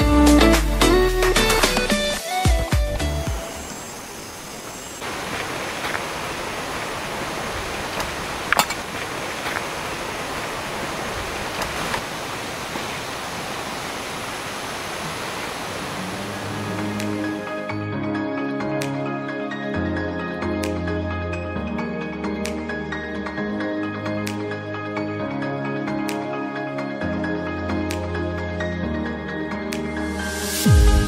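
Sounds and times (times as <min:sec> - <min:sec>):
steady rain hiss: 0:01.5 - 0:17.6
raindrop taps: 0:05.0 - 0:12.1.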